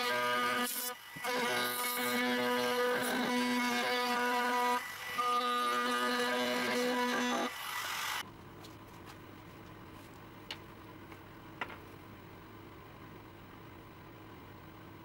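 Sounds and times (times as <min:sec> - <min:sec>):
router whining through wood: 0:00.0 - 0:08.2.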